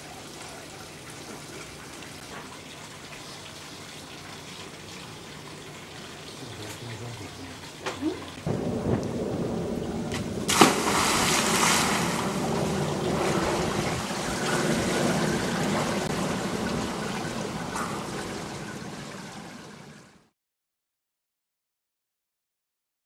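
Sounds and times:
swimming splashing and sloshing: 7.8s - 20.0s
person jumping into pool splash: 10.0s - 16.2s.

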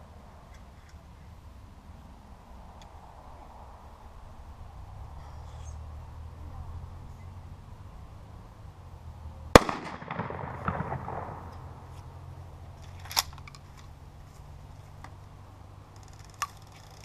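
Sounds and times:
shotgun blast: 9.5s - 11.7s
echo rolling away: 9.5s - 12.8s.

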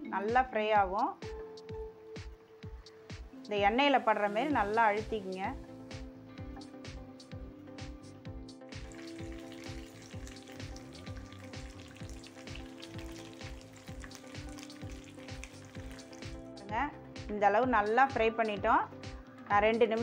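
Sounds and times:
soft background music with beat: 0.0s - 20.0s
chicken sizzling in oil: 8.7s - 16.5s.

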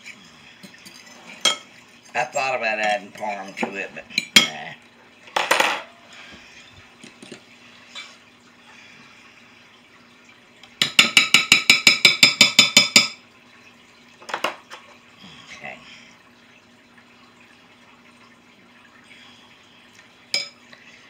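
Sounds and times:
spoon clinking against glass: 20.4s - 20.6s.

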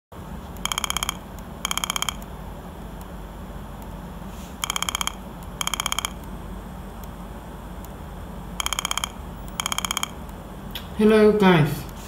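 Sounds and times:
buzzer telephone ring: 0.6s - 2.2s, 4.6s - 6.2s, 8.6s - 10.2s.

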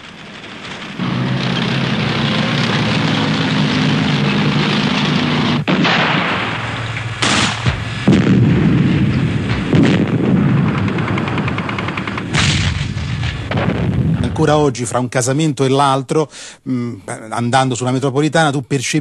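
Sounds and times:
engine drone: 0.0s - 14.3s
explosions: 0.0s - 15.0s
gunfire: 5.5s - 14.4s.

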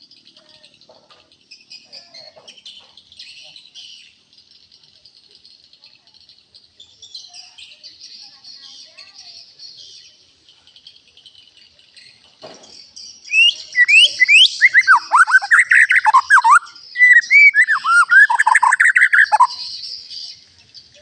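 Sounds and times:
bird singing whistled phrases: 13.2s - 19.9s.

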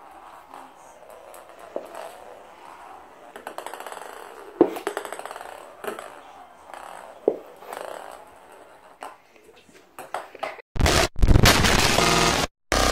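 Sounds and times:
ping-pong ball bouncing on floor: 1.3s - 2.2s, 3.3s - 8.2s, 10.0s - 10.6s.

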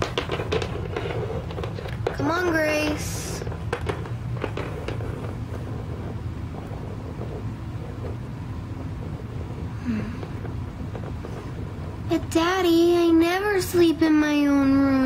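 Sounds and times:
plastic toys tapping on wooden table: 0.0s - 2.6s, 3.4s - 5.3s
low background hum: 0.0s - 15.0s.

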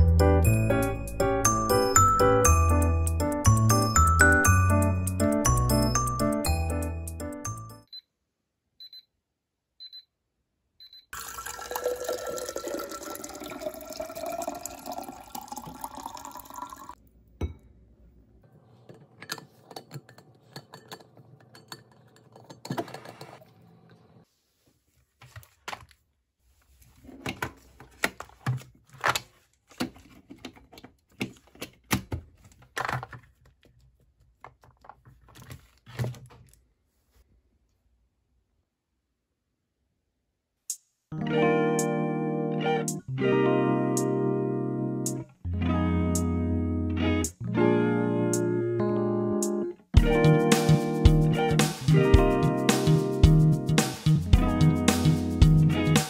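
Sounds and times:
water filling a cup: 11.2s - 17.0s.

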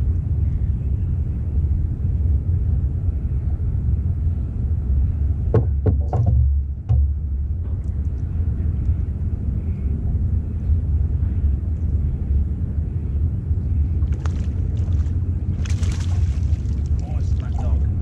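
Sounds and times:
low rumble: 0.0s - 18.0s
sharp clicks and knocks: 5.6s - 7.1s.

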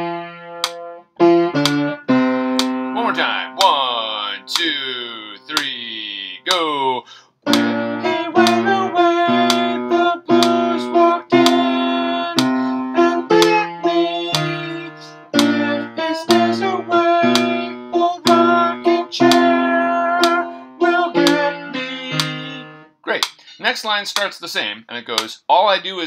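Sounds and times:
piano slow chords: 0.0s - 4.5s, 7.4s - 22.9s.

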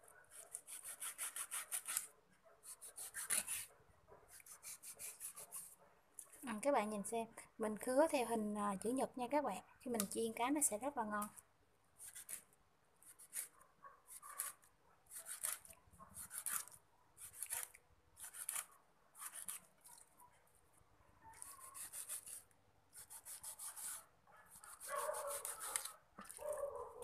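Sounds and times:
knife scraping fish scales: 0.3s - 3.7s, 4.3s - 5.8s, 12.0s - 20.0s, 21.3s - 26.5s.

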